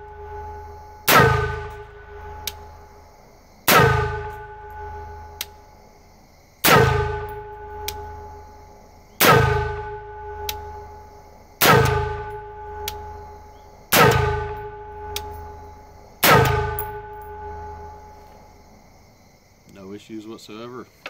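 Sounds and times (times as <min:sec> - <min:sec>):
rifle shots with metallic ringing: 0:00.1 - 0:03.0, 0:03.7 - 0:05.6, 0:06.6 - 0:08.5, 0:09.2 - 0:18.2.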